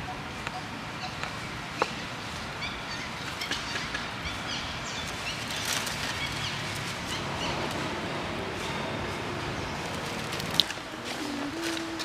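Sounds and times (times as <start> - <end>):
dry leaves crackling: 4.4 - 12.0.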